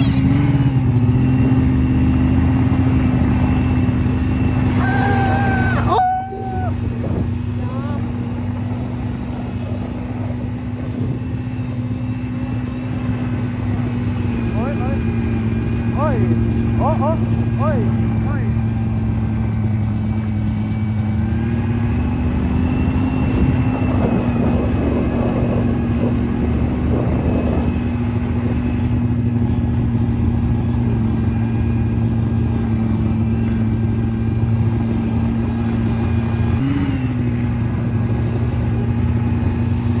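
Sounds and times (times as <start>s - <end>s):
snowmobile engine running: 0.0s - 40.0s.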